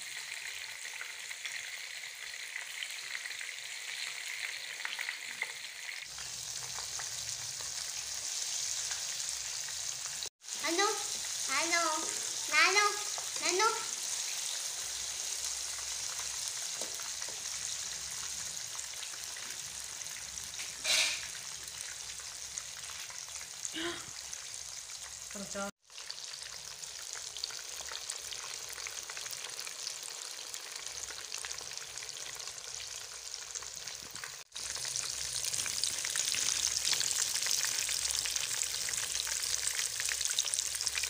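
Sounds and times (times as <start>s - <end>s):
fish deep-frying sizzling hiss: 0.0s - 41.0s.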